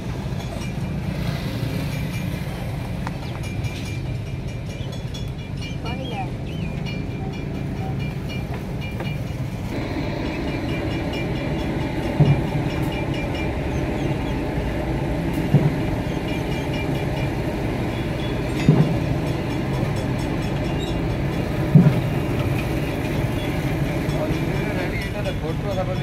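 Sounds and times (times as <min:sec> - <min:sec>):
low mechanical rumble: 0:09.6 - 0:25.6.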